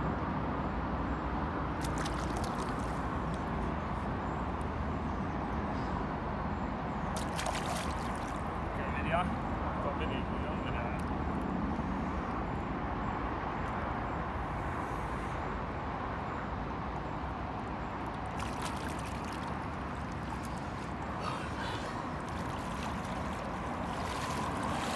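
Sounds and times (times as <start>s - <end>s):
water sloshing and splashing: 1.8s - 4.1s, 7.0s - 8.8s, 17.8s - 24.9s.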